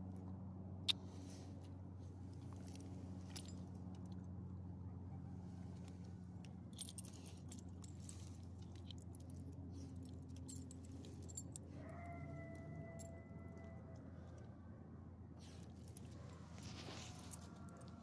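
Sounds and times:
leash hardware jingling: 2.5 - 4.0, 6.7 - 11.7.

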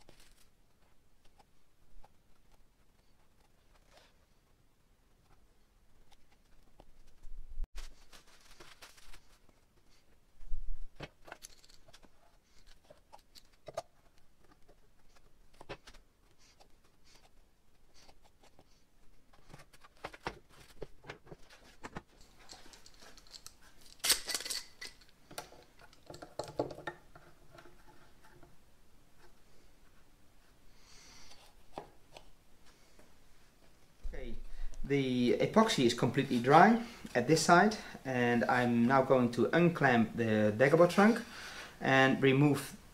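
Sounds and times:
metal clamps clicking and knocking: 22.2 - 27.7.

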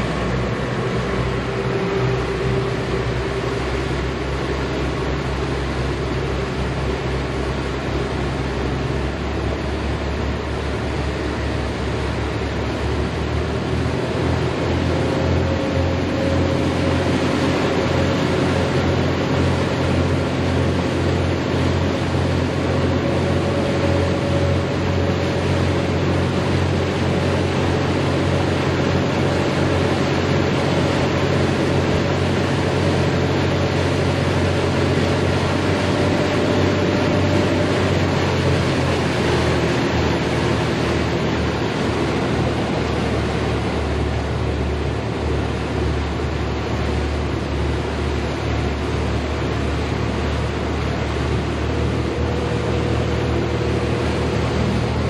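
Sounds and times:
boat engines droning: 0.0 - 55.0
wind and water rushing: 0.0 - 55.0.

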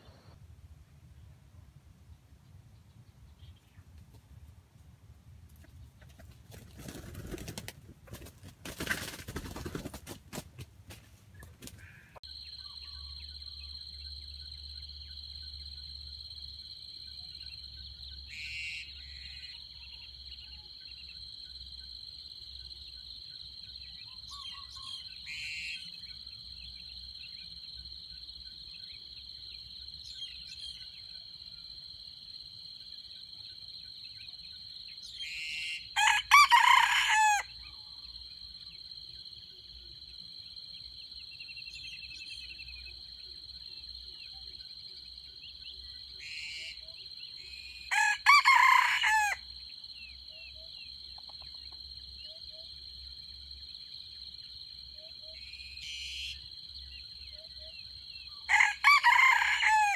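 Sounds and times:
insects droning: 11.6 - 59.9
rooster crowing: 35.9 - 37.6, 47.9 - 49.4, 58.5 - 59.9.

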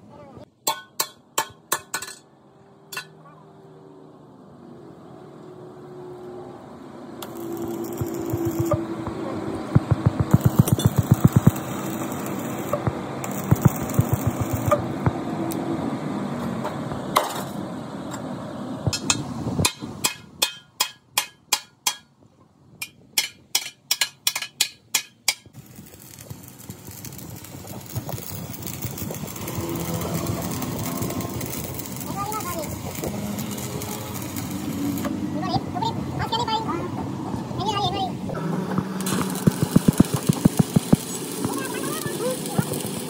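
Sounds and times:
arc welding crackle: 7.2 - 15.6, 25.0 - 35.2, 38.4 - 43.0.

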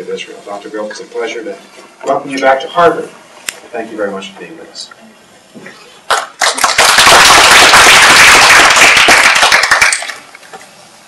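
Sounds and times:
audience applauding: 6.1 - 10.3.

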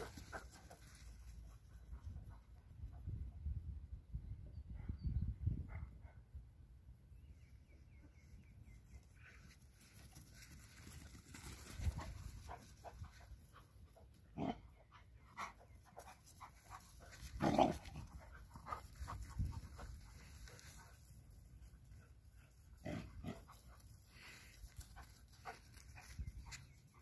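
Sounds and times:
dogs panting: 0.0 - 2.6, 14.8 - 21.2, 21.8 - 27.0.

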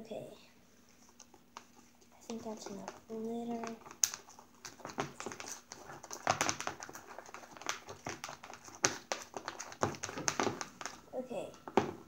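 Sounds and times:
utensil stirring thick mixture: 0.7 - 12.0
utensil knocking plastic tub: 2.3 - 11.0, 11.6 - 12.0.

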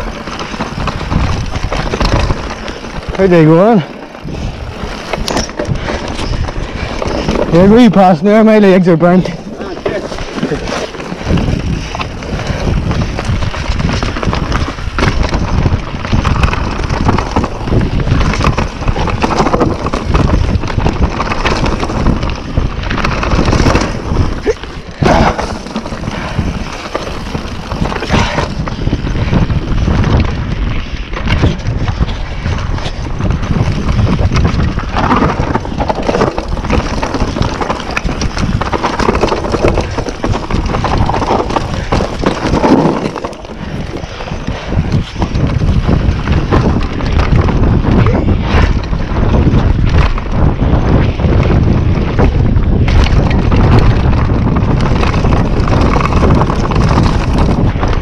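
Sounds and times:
bike knocking and rattling: 0.0 - 58.0
bike tyres rolling over dirt: 0.0 - 58.0
wind on microphone: 0.0 - 58.0.

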